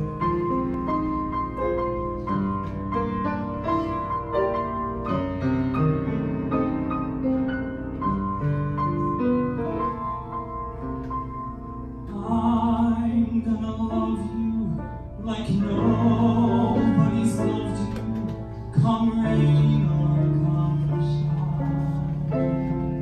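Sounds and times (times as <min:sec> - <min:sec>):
slow piano ballad: 0:00.0 - 0:23.0
man singing: 0:12.1 - 0:22.4.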